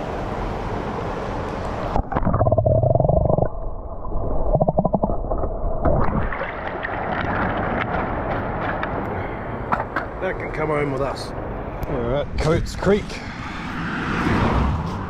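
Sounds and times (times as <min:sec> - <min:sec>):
muffled underwater gurgling: 0:02.0 - 0:06.4
water bubbling flutter: 0:02.0 - 0:08.5.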